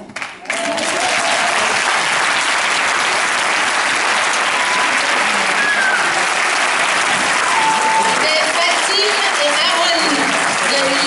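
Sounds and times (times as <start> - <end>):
audience applauding: 0.0 - 11.0
short calls from audience: 4.1 - 11.0.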